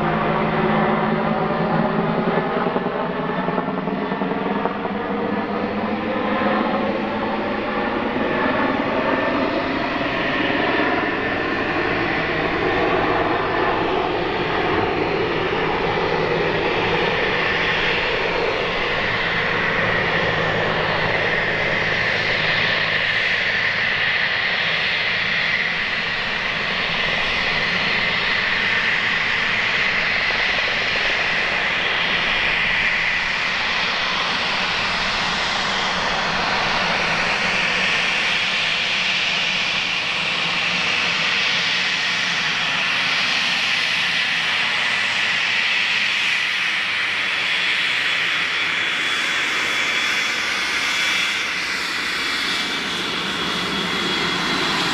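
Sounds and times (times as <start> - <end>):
jet engines whining: 0.0 - 54.9.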